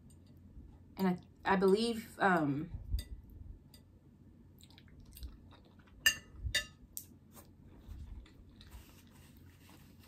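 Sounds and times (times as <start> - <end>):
person chewing food: 4.6 - 6.1, 7.0 - 9.5.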